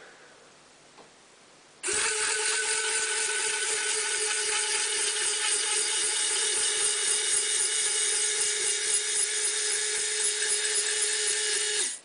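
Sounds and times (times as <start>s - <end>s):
small gear motors whining: 1.8s - 12.0s.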